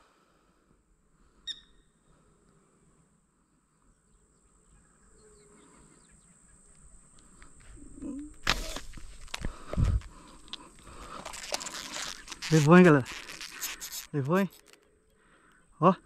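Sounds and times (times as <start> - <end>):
bird chirp: 1.4 - 2.0
steady high hiss: 6.7 - 14.8.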